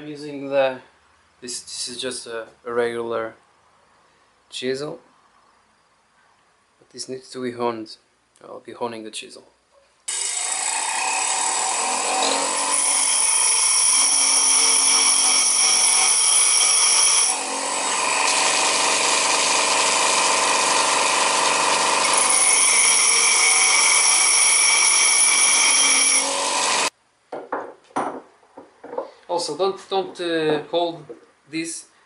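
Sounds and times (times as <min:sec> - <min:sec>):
bench grinder motor running: 0:10.1 - 0:26.9
chisel grinding on wheel: 0:10.3 - 0:26.9.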